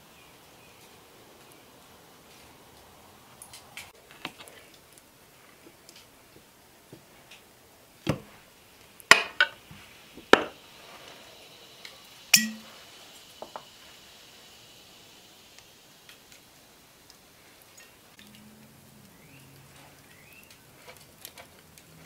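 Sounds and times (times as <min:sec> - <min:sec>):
fork and knife clinking on plates: 0:12.4 - 0:12.7.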